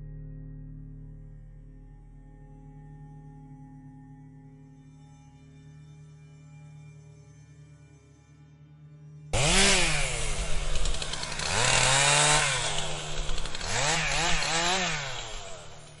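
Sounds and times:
chainsaw engine revving: 9.4 - 16.0.

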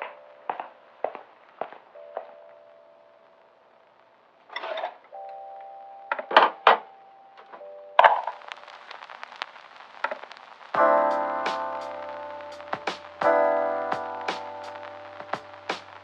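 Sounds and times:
held keyboard chords: 5.1 - 9.4, 10.4 - 16.0.

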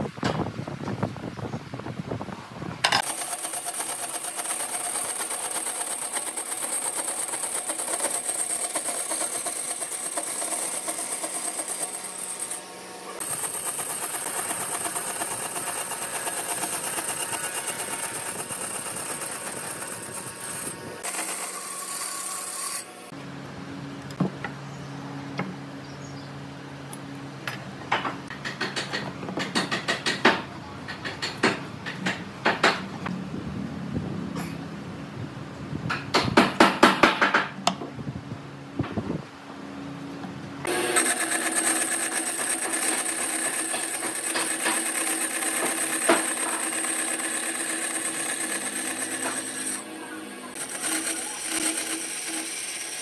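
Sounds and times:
band saw cutting wood: 2.9 - 23.2, 40.6 - 53.0
tools tapping on wooden workbench: 27.4 - 32.9.

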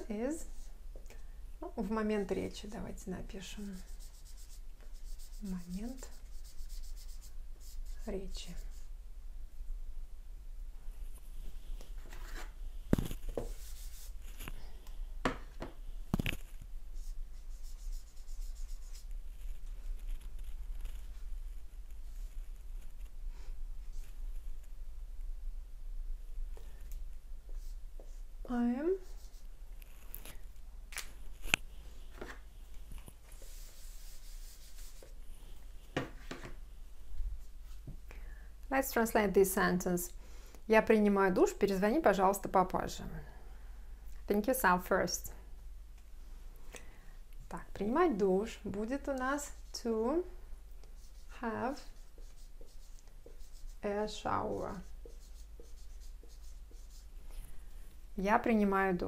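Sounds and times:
eraser scraping whiteboard: 33.3 - 35.2, 51.0 - 57.1.

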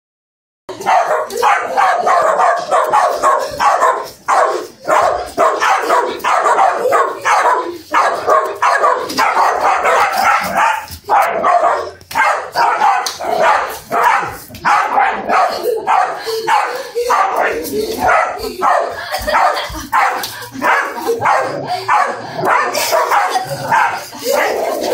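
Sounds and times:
dogs barking rapidly: 0.7 - 24.9.

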